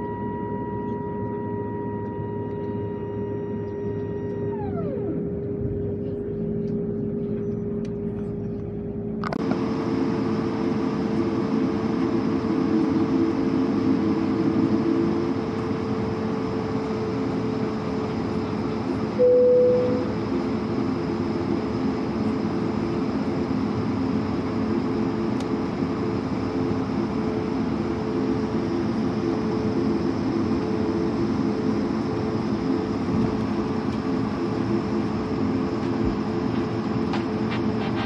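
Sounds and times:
short single tone: 0.0 - 4.6, 19.2 - 20.2
low jet engine hum: 0.0 - 38.0.

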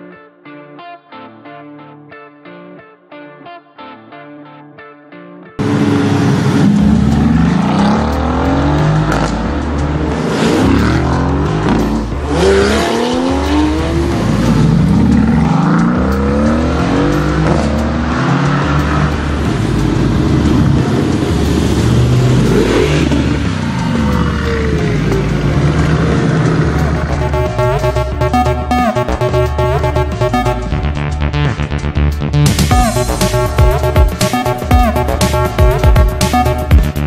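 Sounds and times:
car engine accelerating hard: 5.6 - 29.3
pulsing bass music: 5.6 - 37.0.

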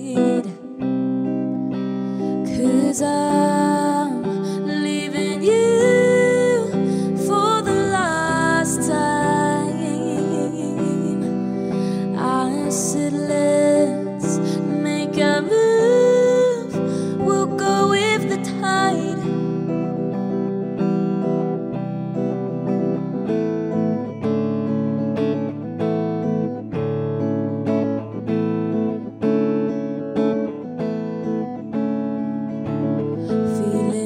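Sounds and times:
person singing: 0.0 - 20.6, 33.0 - 34.0.

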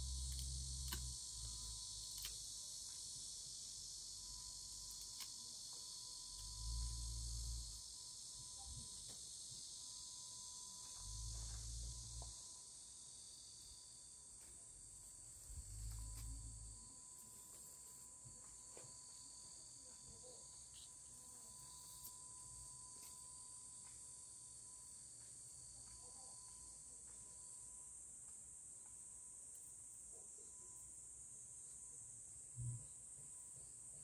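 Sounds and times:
faint ticks trimming onion stalks: 0.0 - 3.1, 4.6 - 7.8
high-pitched insect chorus: 0.0 - 34.0.

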